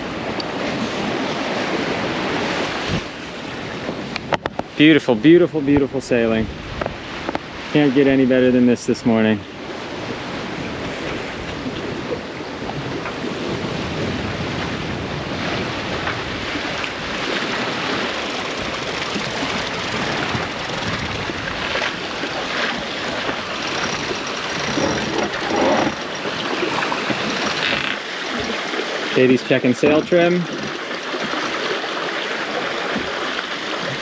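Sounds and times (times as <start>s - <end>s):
wind buffeting microphone: 0.0s - 4.8s, 5.6s - 7.7s, 9.4s - 28.7s
water rushing along a hull: 0.0s - 34.0s.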